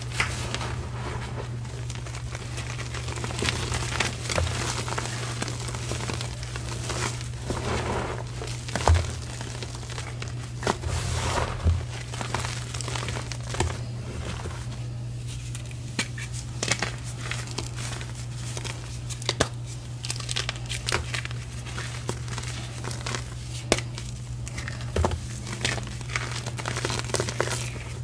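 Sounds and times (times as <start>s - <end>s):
chalk crunching and crumbling: 0.0s - 28.0s
steady low hum: 0.0s - 28.0s
chalk pieces snapping: 18.5s - 22.2s.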